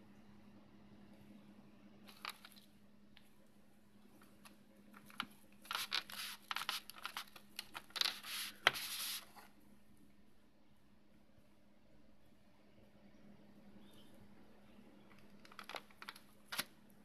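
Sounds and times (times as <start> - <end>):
faint steady hum: 0.0 - 17.0
plastic packaging crinkling: 2.1 - 2.7, 5.0 - 9.2, 15.1 - 16.7.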